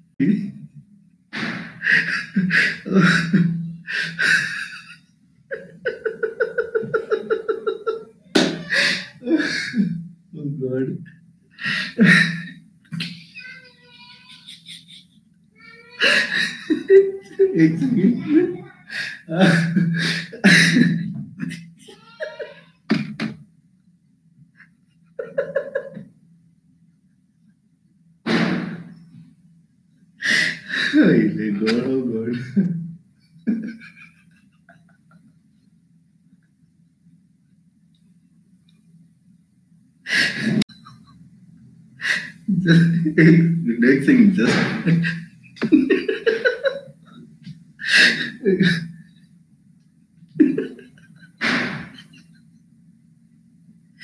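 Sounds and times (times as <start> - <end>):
steady low hum: 0.0 - 54.0
man laughing: 1.8 - 10.0, 11.6 - 15.2, 15.8 - 22.8, 25.2 - 26.0, 30.3 - 32.8, 33.4 - 35.4, 40.1 - 41.2, 42.0 - 47.2, 47.8 - 49.0, 50.3 - 52.5.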